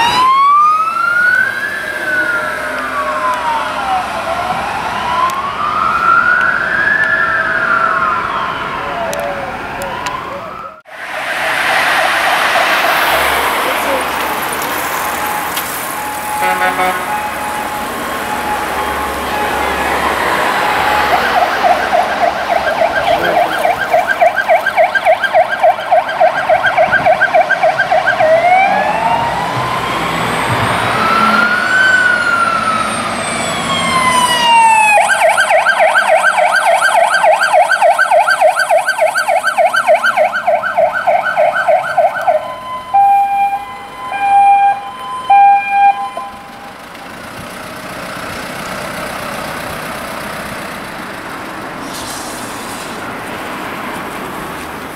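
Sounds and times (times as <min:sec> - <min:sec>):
fire engine siren: 0:00.0 - 0:54.3
short horn blasts: 0:16.4 - 0:17.2.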